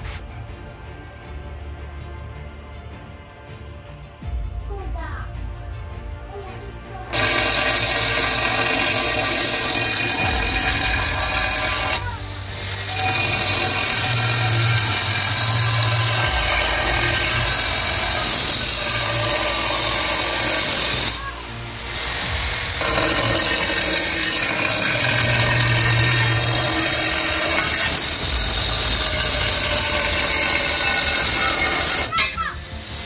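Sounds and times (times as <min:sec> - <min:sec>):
angle grinder cutting tile: 0:07.1 - 0:33.0.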